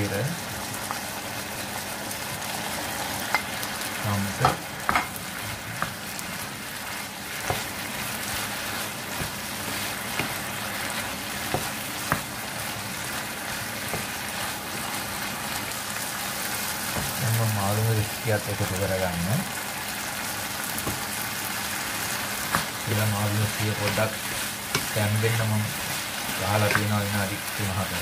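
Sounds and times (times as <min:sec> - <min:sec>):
food sizzling in hot oil: 0:00.0 - 0:28.0
utensil tapping pan: 0:04.4 - 0:05.2, 0:22.5 - 0:25.6, 0:26.4 - 0:27.3
spatula stirring in pan: 0:04.4 - 0:17.2, 0:19.4 - 0:28.0.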